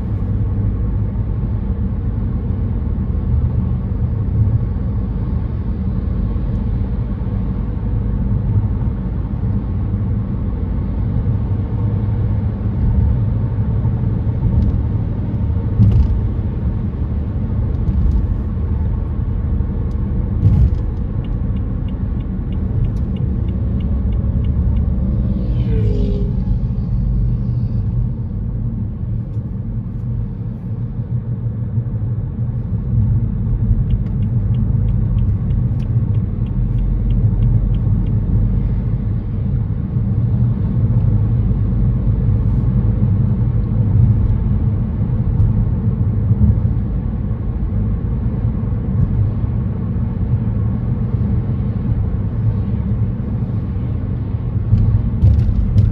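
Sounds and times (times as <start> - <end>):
road and tyre rumble: 0.0 - 55.9
brief wavering squeal: 25.3 - 26.8.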